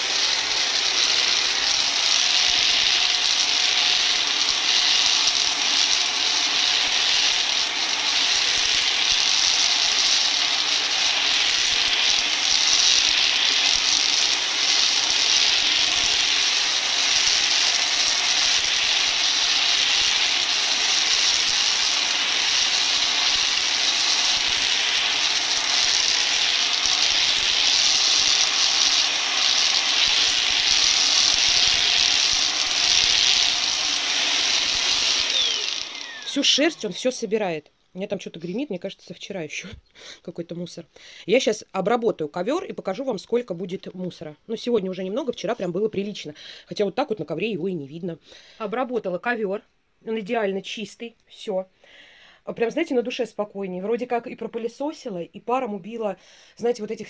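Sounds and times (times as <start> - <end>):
upright vacuum cleaner running: 0.0 - 37.1.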